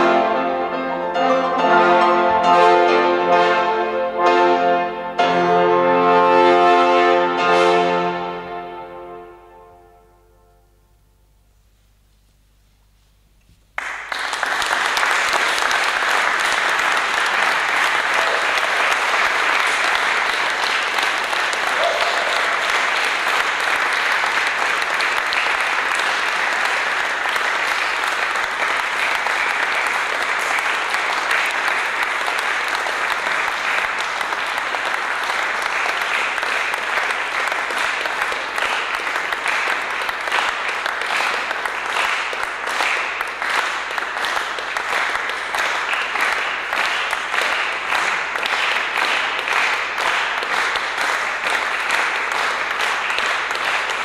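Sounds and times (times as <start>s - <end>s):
audience applauding in a hall: 13.7s - 54.0s.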